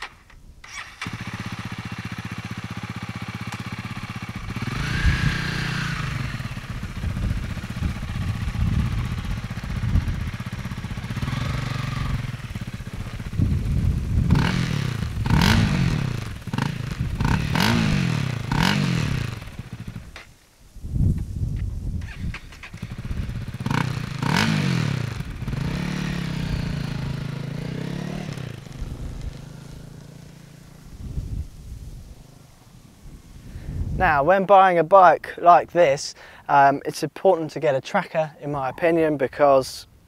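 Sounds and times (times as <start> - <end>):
motorcycle engine revving: 0.0 - 20.3, 21.9 - 33.3.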